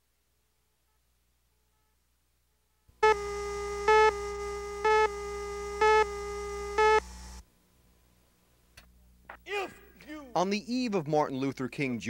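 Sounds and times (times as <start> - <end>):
countdown beeps: 3.0 - 7.0
steady electronic tone: 3.0 - 7.4.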